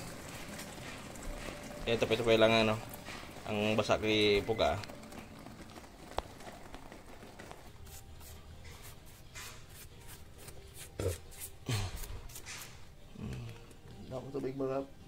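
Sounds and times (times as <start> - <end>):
brush scrubbing metal fins: 7.8 - 12.8.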